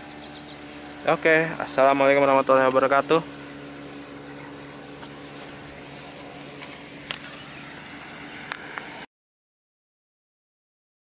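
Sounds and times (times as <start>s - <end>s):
faint high steady tone: 0.0s - 6.5s
low hum: 0.0s - 9.1s.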